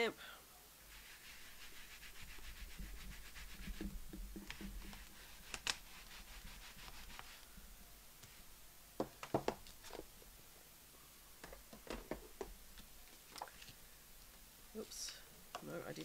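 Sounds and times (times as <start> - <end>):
scratchy rubbing on fibre pads: 0.9 - 7.5.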